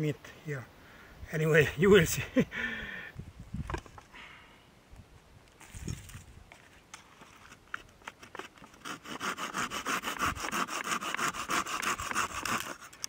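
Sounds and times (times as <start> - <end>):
hand saw cutting wood: 8.1 - 13.0.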